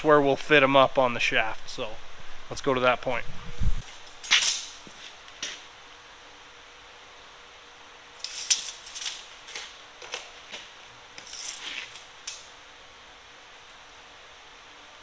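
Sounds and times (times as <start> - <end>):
tape measure clicking on metal: 4.2 - 4.8, 8.2 - 10.2.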